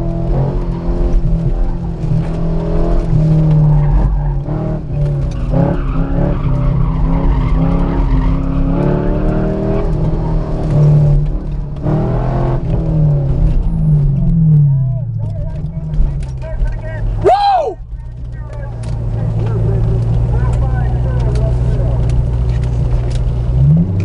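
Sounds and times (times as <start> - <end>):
car engine revving: 0.0 - 24.0
tires squealing: 0.0 - 24.0.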